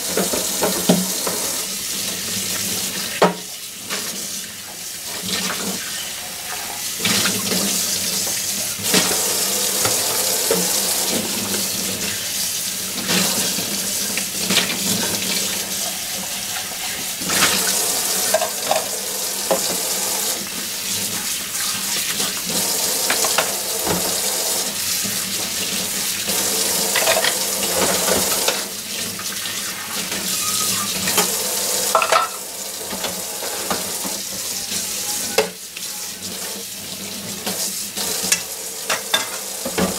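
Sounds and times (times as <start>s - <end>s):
tap running into a sink: 0.0s - 1.7s, 2.5s - 4.2s, 6.6s - 12.2s, 13.0s - 24.6s, 26.3s - 36.6s, 37.2s - 39.9s
dishes clinking: 18.2s - 18.9s, 26.9s - 28.6s, 30.3s - 32.4s, 38.3s - 39.9s.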